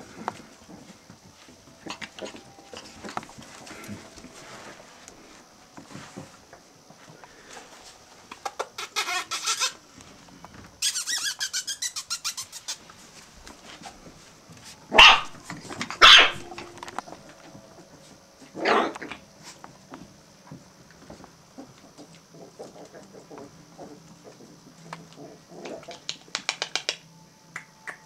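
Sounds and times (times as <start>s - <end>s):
puppies yapping: 14.9s - 16.8s.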